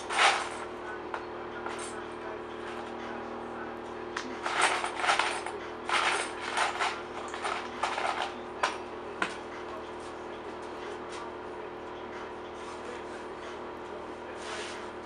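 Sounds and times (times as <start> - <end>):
tools clattering and clinking: 0.0 - 0.7, 4.2 - 9.4
steady workshop hum: 0.0 - 15.0.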